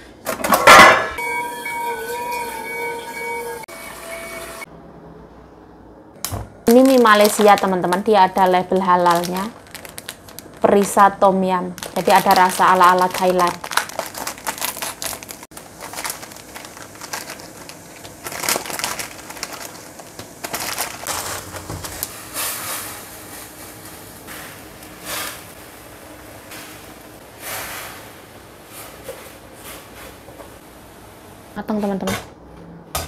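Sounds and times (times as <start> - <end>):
plastic packet crinkling: 6.7 - 22.1.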